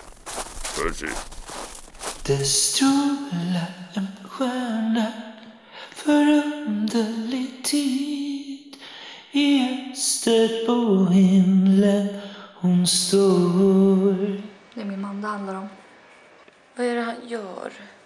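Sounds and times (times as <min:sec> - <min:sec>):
woman singing unaccompanied: 0:02.3 - 0:08.6, 0:09.4 - 0:14.5
breaths: 0:05.6 - 0:06.0, 0:08.7 - 0:09.4, 0:12.1 - 0:12.6.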